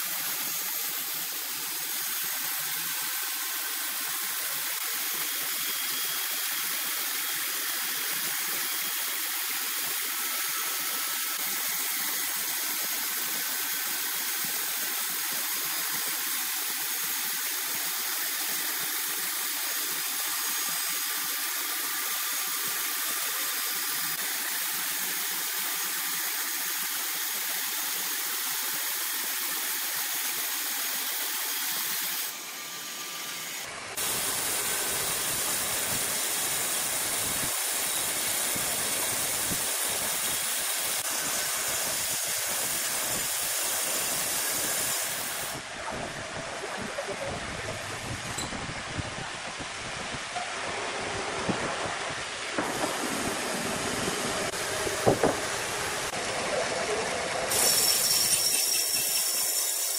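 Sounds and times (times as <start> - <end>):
bandsaw blade cutting log: 0.0 - 16.8, 18.3 - 45.6, 57.5 - 59.9.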